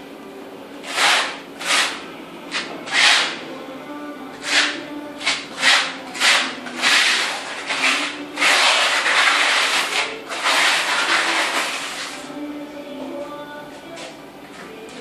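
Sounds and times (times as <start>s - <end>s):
trowel scraping adhesive on concrete: 0.9s - 2.0s, 2.6s - 3.4s, 4.4s - 12.2s.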